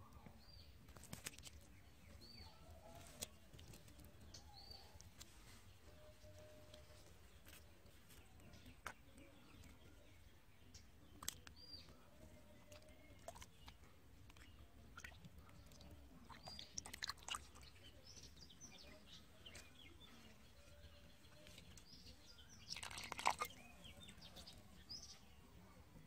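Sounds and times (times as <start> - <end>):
faint bird chirps: 2.1 - 26.0
muddy water sloshing and squelching: 12.7 - 17.8, 22.7 - 23.8.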